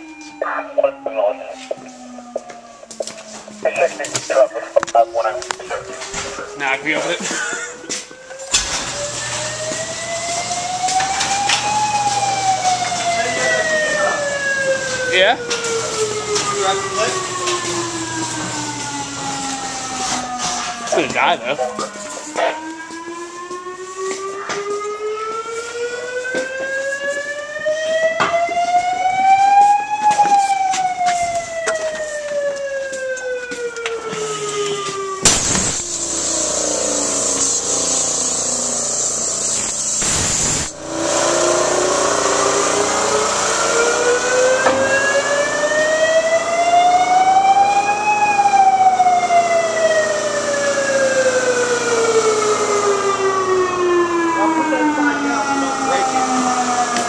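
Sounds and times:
fire siren wailing: 0.0 - 57.0
loud rushing hiss: 35.2 - 44.5.

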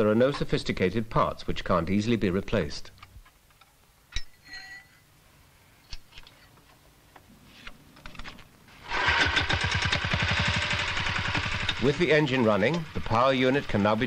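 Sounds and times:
small engine running: 8.8 - 14.0.

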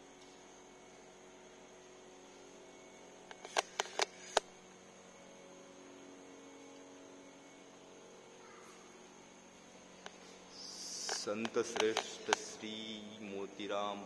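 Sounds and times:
low electrical hum: 0.0 - 14.0
sharp clicks: 11.0 - 12.5.

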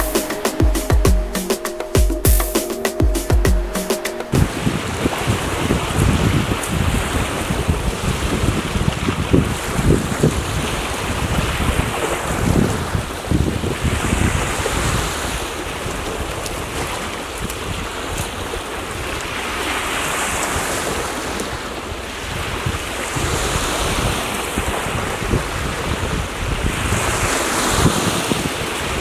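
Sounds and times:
wind buffeting microphone: 4.3 - 19.2, 22.2 - 29.0.

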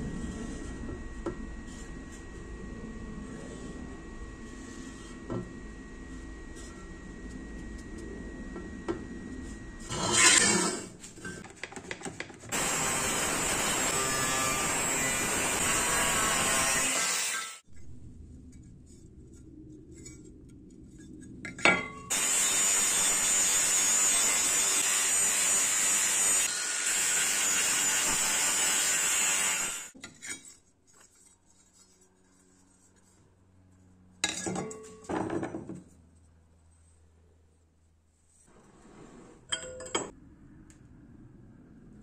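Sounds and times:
angle grinder grinding steel: 9.8 - 11.4, 12.5 - 17.6, 22.1 - 30.0.

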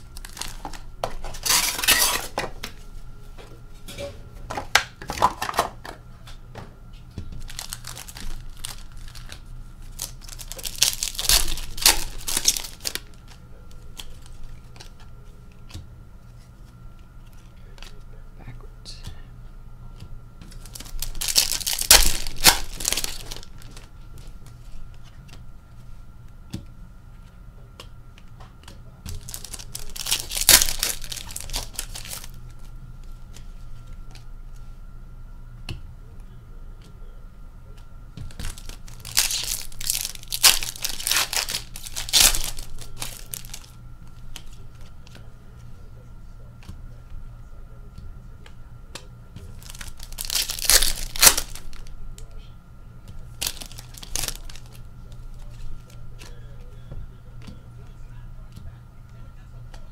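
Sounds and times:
wrappers tearing and crinkling: 0.0 - 2.4, 7.4 - 15.0, 20.5 - 23.9, 29.1 - 32.7, 38.3 - 44.6, 49.5 - 51.9, 53.3 - 56.3.

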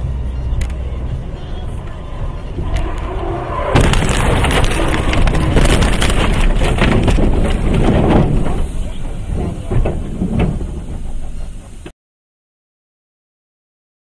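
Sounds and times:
truck driving on highway: 0.0 - 11.9
loud car crash: 2.5 - 11.4
crunching and clattering impacts: 3.7 - 11.8.

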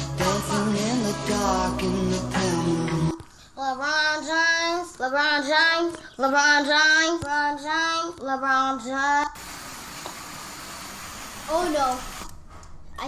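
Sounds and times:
boy singing unaccompanied: 0.2 - 9.4.

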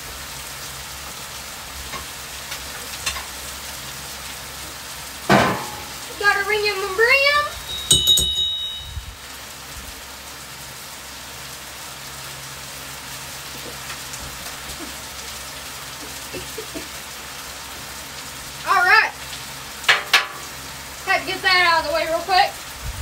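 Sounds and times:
meat sizzling on a griddle: 0.0 - 8.0, 8.8 - 23.0
click with high ring: 7.7 - 9.0.

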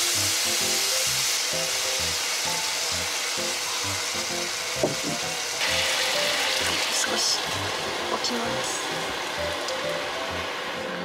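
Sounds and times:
background music: 0.0 - 11.0
vegetables sizzling in a frying pan: 0.0 - 11.0
short knock: 4.8 - 5.2.

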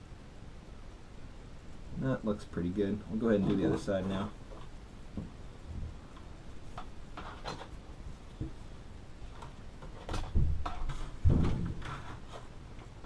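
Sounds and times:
loud thumps: 10.1 - 12.0.

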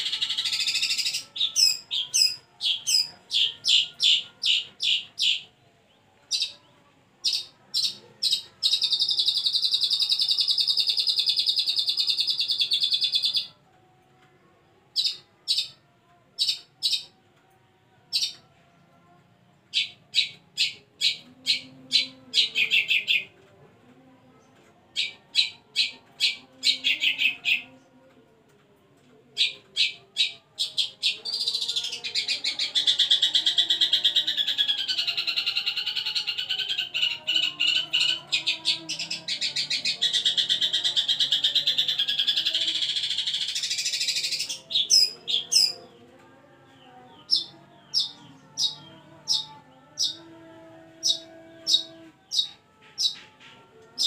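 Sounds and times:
bird harsh trill: 0.0 - 5.5, 47.3 - 50.2.

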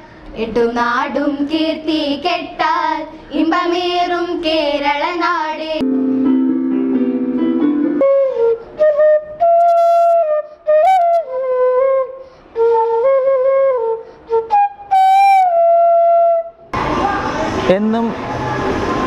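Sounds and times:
electronic keyboard chords: 5.8 - 10.3
flute playing slow melody: 5.8 - 16.7.

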